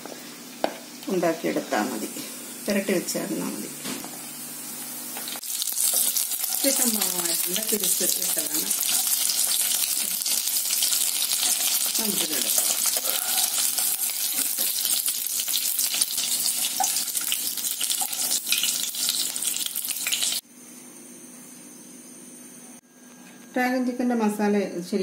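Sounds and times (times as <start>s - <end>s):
chicken sizzling in oil: 4.3s - 20.4s
spoon stirring in pan: 8.7s - 14.8s.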